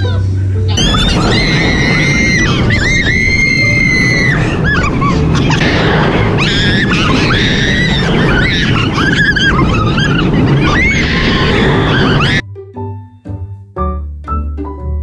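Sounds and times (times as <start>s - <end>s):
wind buffeting microphone: 0.8s - 12.2s
riders screaming: 0.8s - 12.4s.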